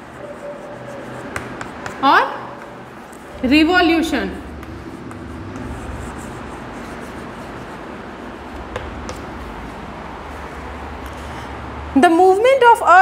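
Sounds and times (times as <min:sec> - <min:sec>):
chalk scratching on blackboard: 0:00.0 - 0:11.5
low room hum: 0:00.0 - 0:13.0
light chalk taps: 0:00.9 - 0:03.2, 0:04.5 - 0:07.8, 0:08.5 - 0:09.8.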